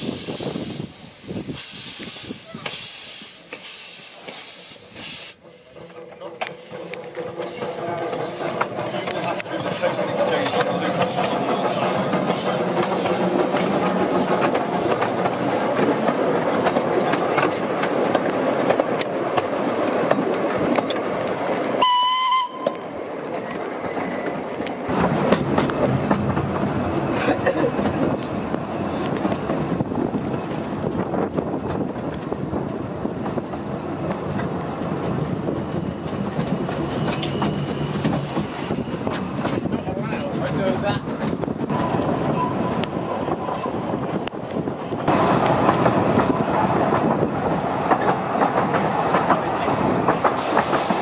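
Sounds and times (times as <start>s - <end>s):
steam train rumble and clatter: 0.0s - 51.0s
train whistle toot: 21.8s - 22.8s.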